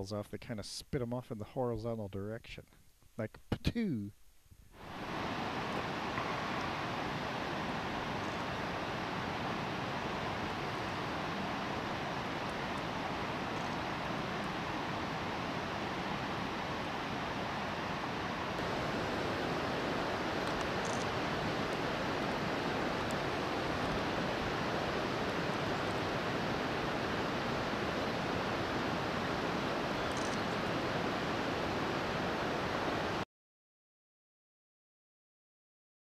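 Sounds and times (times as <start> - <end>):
faint high ticks: 20.4 - 21.1, 30.1 - 30.4.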